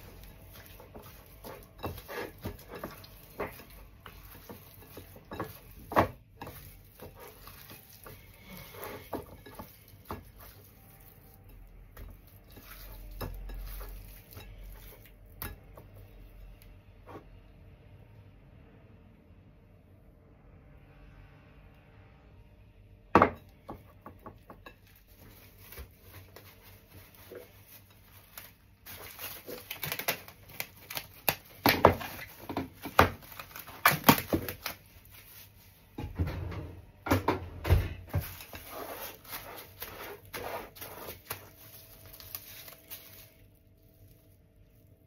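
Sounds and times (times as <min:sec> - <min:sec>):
cling film crinkling: 0:25.1 - 0:35.8, 0:38.2 - 0:44.7.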